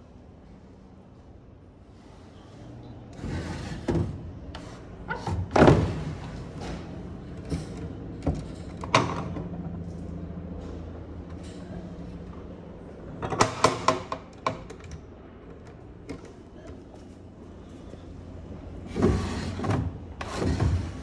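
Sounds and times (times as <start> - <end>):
wooden drawer scraping: 3.2 - 6.2, 18.9 - 21.0.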